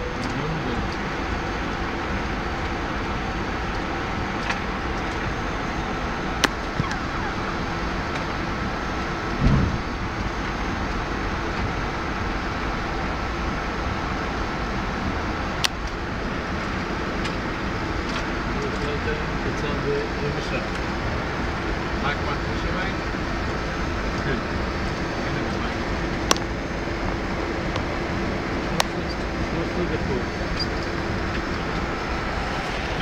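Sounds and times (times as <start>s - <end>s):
aircraft engine hum: 0.0s - 33.0s
dull thump: 9.4s - 9.9s.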